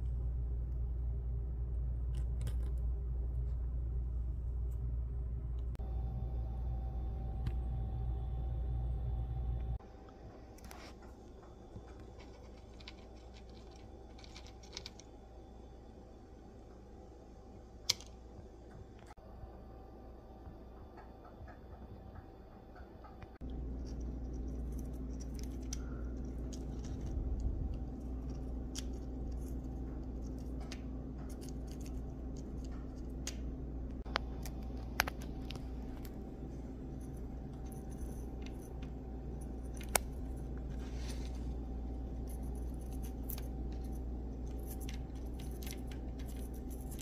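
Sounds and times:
low room hum: 0:00.0 - 0:47.0
paper parts clicking and rustling: 0:11.8 - 0:15.2, 0:23.6 - 0:33.4, 0:34.0 - 0:47.0.

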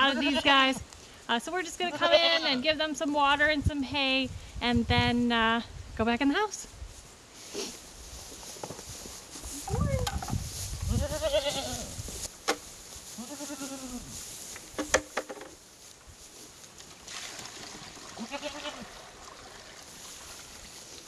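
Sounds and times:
goats bleating: 0:00.0 - 0:00.7, 0:01.9 - 0:02.7, 0:10.9 - 0:11.9, 0:13.2 - 0:14.0, 0:18.2 - 0:18.9
water poured into tub: 0:17.1 - 0:18.2, 0:18.8 - 0:20.7.

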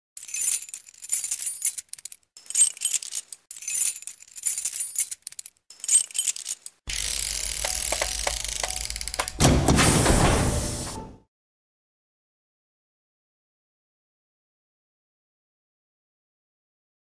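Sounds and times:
metallic jingling and rattling: 0:00.2 - 0:06.8.

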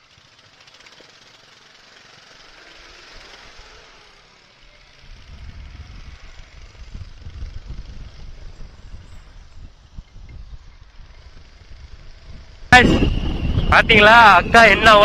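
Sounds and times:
rushing wind noise: 0:05.0 - 0:15.0
wind buffeting on microphone: 0:05.0 - 0:15.0.

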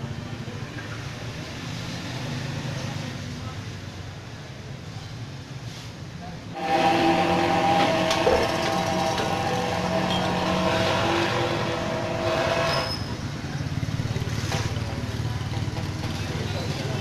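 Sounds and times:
motor running: 0:06.6 - 0:13.0.

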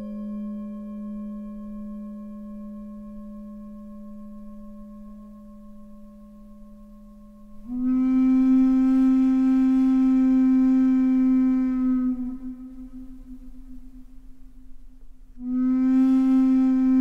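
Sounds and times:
singing bowl ringing: 0:00.0 - 0:08.8.

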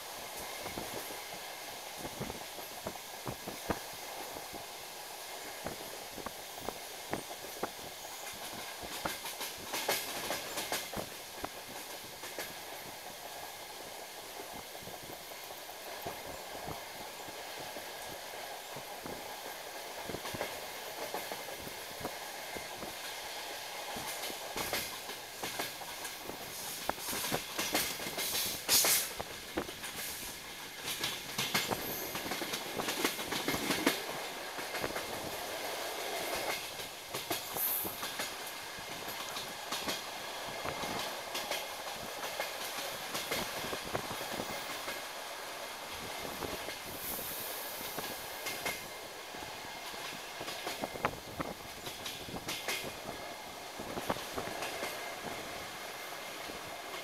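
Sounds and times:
train rolling noise: 0:00.0 - 0:57.0
wheels clacking over rail joints: 0:23.9 - 0:45.2.

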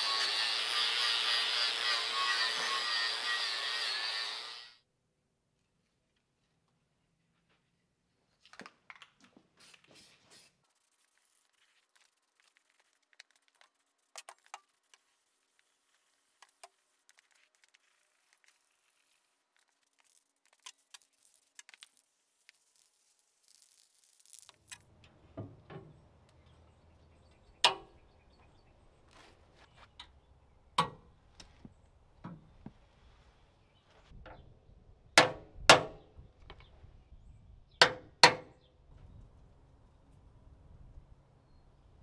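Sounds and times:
spray can hissing: 0:09.6 - 0:24.7.

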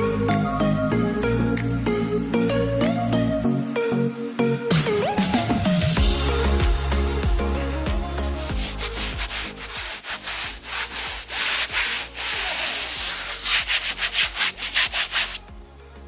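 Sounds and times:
hand rubbing canvas cloth: 0:08.3 - 0:15.5.

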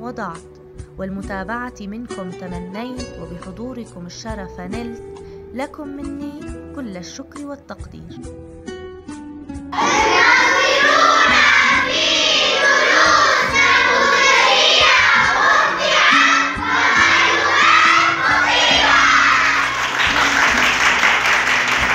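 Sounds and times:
music: 0:00.0 - 0:21.9
children singing and shouting: 0:09.8 - 0:20.2
cheering and clapping: 0:09.8 - 0:21.9.

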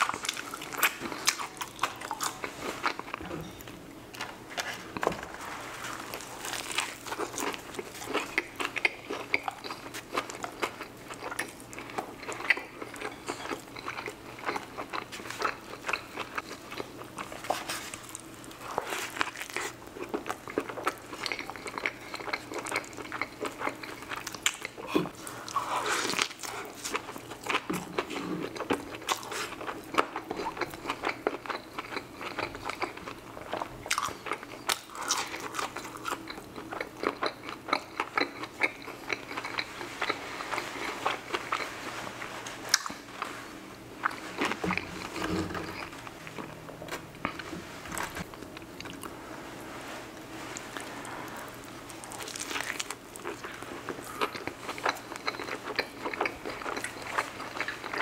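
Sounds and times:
crunchy chewing: 0:00.0 - 0:03.2, 0:04.1 - 0:49.2, 0:50.4 - 0:58.0.

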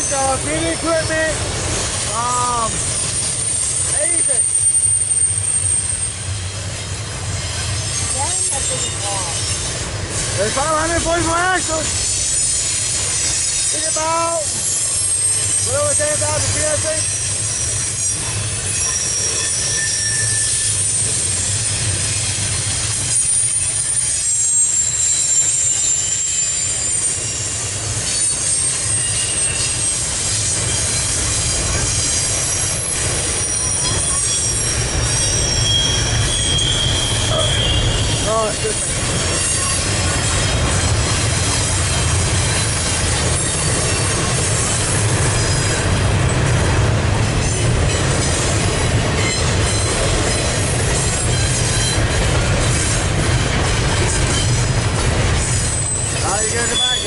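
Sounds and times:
train wheels rumbling on rail: 0:00.0 - 0:57.0
high-pitched wheel squeals: 0:01.9 - 0:06.6, 0:11.2 - 0:45.9, 0:47.4 - 0:53.0, 0:55.4 - 0:57.0.

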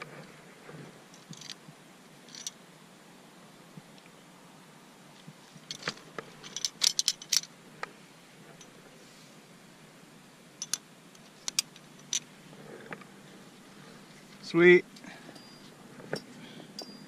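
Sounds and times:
climbing hardware clinking: 0:01.1 - 0:01.6, 0:02.3 - 0:02.6, 0:05.6 - 0:07.5, 0:10.6 - 0:12.3.

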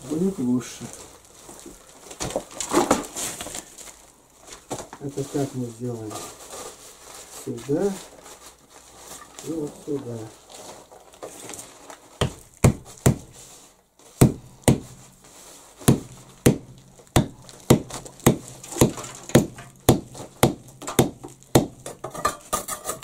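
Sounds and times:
hammer knocking wedge into wood: 0:12.2 - 0:13.4, 0:14.2 - 0:15.0, 0:15.8 - 0:22.2.

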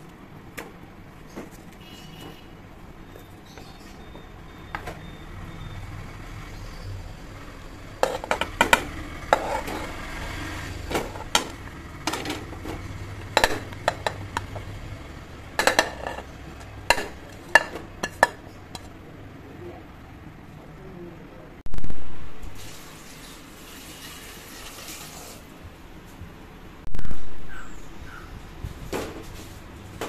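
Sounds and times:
potato chunks knocking in metal pot: 0:08.0 - 0:10.2, 0:10.8 - 0:14.8, 0:15.4 - 0:19.0.

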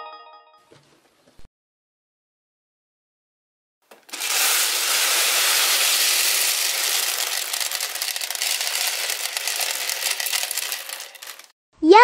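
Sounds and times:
plastic beads pouring and clicking: 0:03.9 - 0:11.6.

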